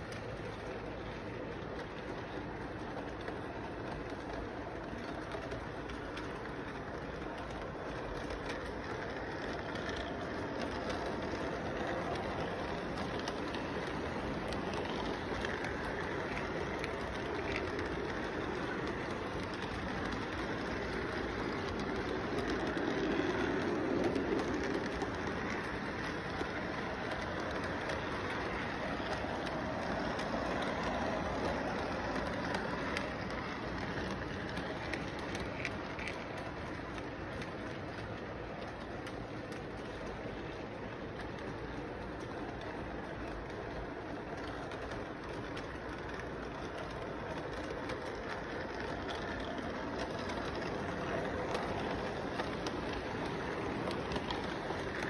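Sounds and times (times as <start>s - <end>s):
toy train wheels clattering: 0.0s - 55.0s.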